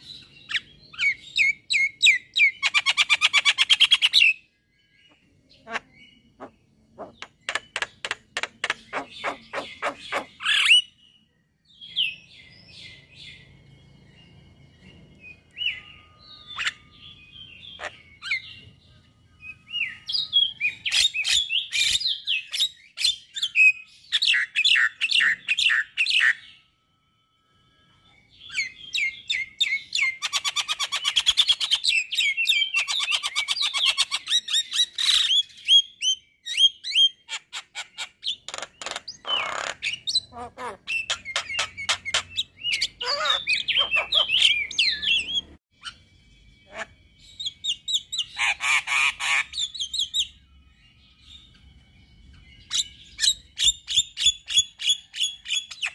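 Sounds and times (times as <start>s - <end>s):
myna chirps whistles and squawks: 5.6s - 11.0s, 28.5s - 46.0s, 46.7s - 50.4s.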